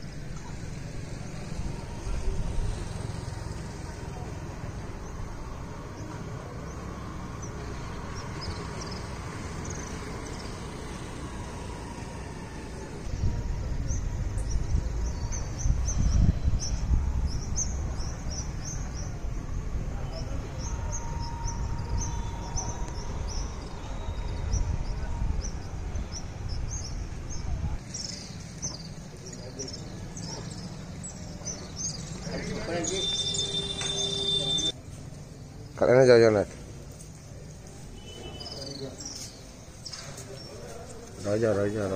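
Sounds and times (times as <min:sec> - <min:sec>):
faint high bird chirps: 0:30.1 - 0:34.8.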